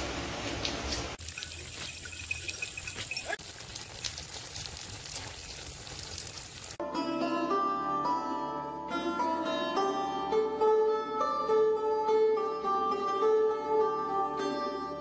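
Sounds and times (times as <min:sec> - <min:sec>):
water trickling and dripping: 0:00.6 - 0:06.8
steady rain hiss: 0:03.4 - 0:06.8
plucked-string music: 0:06.8 - 0:15.0.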